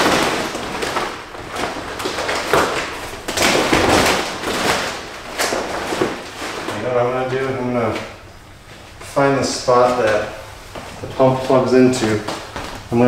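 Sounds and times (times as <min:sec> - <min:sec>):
plastic sheeting crinkling: 0:00.0 - 0:13.0.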